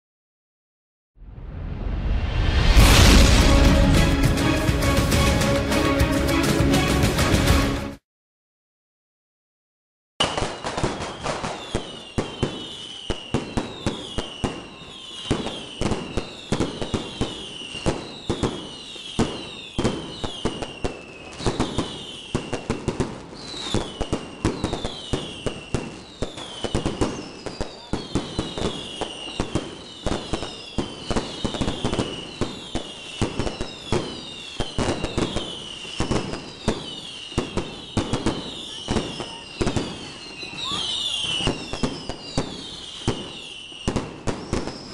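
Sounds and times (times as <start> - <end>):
fireworks bangs and crackles: 2.4 - 5.4, 10.2 - 44.9
whistling fireworks: 10.2 - 44.9.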